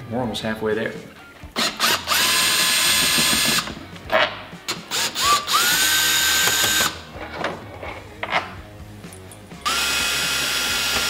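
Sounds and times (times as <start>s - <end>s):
cordless drill whining: 1.6s - 3.7s, 4.9s - 7.0s, 9.6s - 11.0s
drill clicks: 1.6s - 3.7s, 4.7s - 7.0s, 9.6s - 11.0s.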